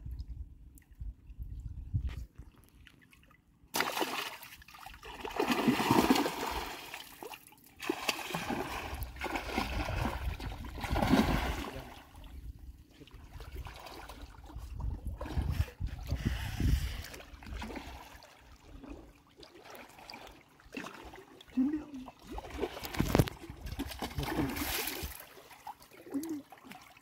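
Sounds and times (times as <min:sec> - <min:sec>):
river water splashing: 0:03.7 - 0:12.3, 0:23.7 - 0:27.0.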